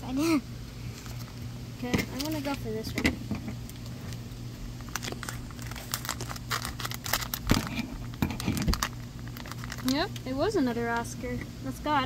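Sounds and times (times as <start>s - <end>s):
foil packet crinkling: 2.1s - 2.7s, 3.7s - 10.3s
scissors cutting foil: 4.9s - 10.0s.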